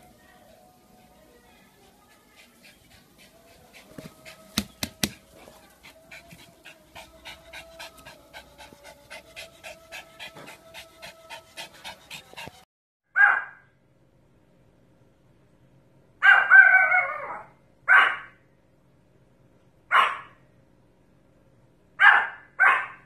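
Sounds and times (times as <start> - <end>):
dog panting: 0.0 - 12.7
dog barking: 13.2 - 13.6, 16.2 - 18.4, 19.9 - 20.4, 22.0 - 23.0.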